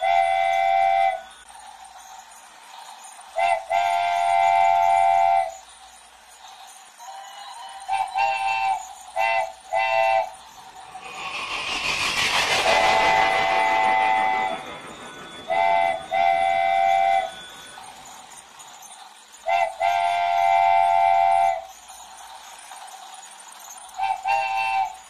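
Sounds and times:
rush of noise: 0:10.6 - 0:18.3.

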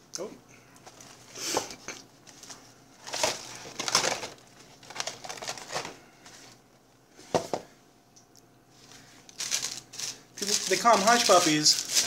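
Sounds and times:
paper and cardboard rustling: 0:02.3 - 0:06.6, 0:08.9 - 0:12.0.

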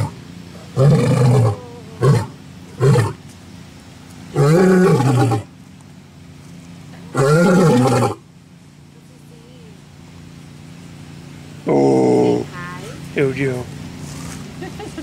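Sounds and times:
lion roaring: 0:00.0 - 0:03.2, 0:04.3 - 0:05.5, 0:07.1 - 0:08.2, 0:11.7 - 0:12.4.

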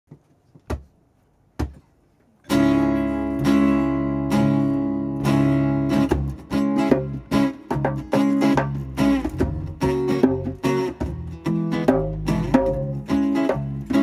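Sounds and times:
acoustic guitar strummed chords: 0:02.5 - 0:14.0
bass guitar: 0:02.5 - 0:14.0
guitar taps: 0:06.0 - 0:14.0.

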